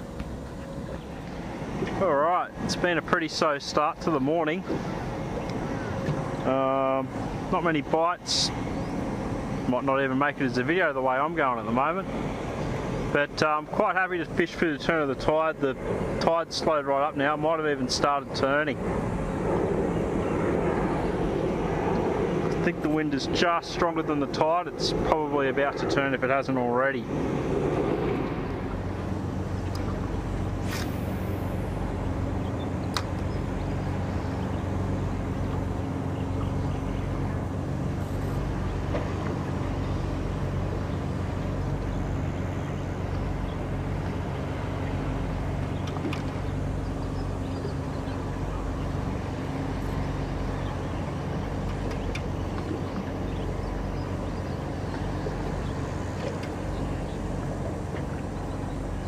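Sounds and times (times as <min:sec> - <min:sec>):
low engine hum: 0:00.0 - 0:59.0
water noise: 0:00.0 - 0:59.0
wind: 0:00.0 - 0:59.0.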